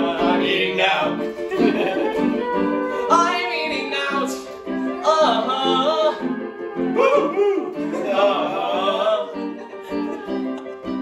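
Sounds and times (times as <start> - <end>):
man singing without words: 0.0 - 3.4, 5.0 - 9.5.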